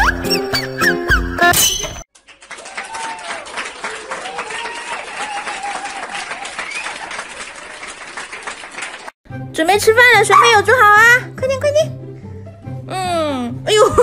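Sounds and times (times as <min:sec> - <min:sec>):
crowd clapping: 0:02.1 - 0:09.2
children's music: 0:09.3 - 0:14.0.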